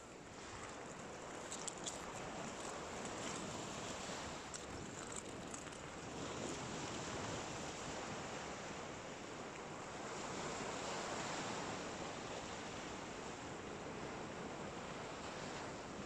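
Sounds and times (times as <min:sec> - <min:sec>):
waves washing onto beach: 0:00.0 - 0:16.0
wind on microphone: 0:00.4 - 0:09.1.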